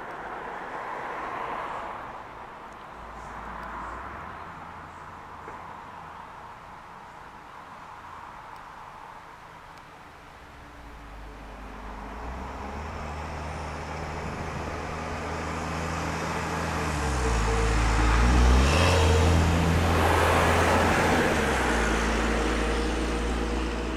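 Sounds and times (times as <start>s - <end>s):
vehicle driving past: 10.6s - 23.9s.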